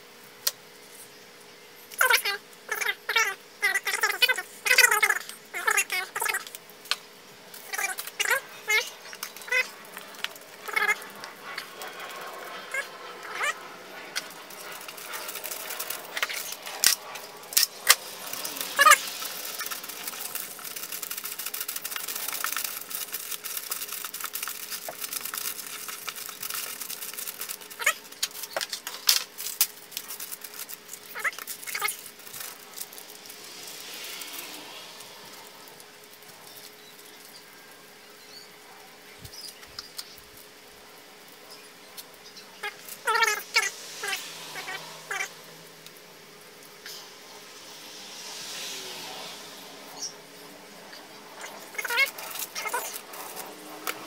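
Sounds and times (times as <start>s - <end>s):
hiss: 9.7s - 23.6s, 31.6s - 36.8s, 42.8s - 54.0s.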